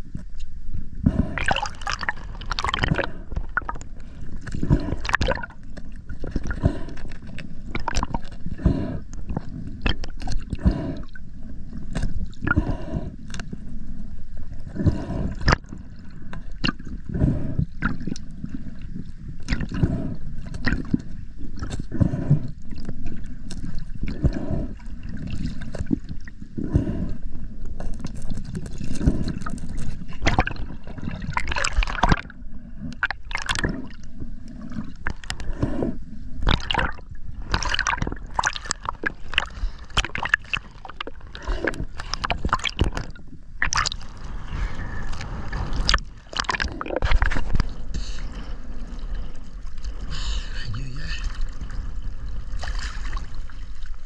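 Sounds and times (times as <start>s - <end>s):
water gurgling underwater: 1.0s - 54.0s
water splashing: 1.2s - 11.0s, 28.0s - 32.3s, 36.4s - 54.0s.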